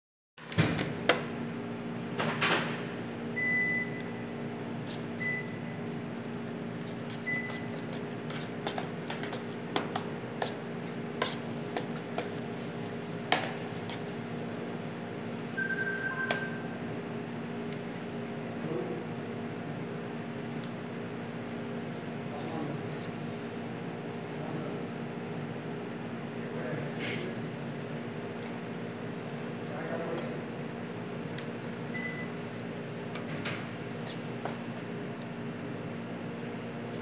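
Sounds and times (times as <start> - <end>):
electrical hum of kitchen equipment: 0.4 - 37.0
faint high beeps: 15.6 - 16.7.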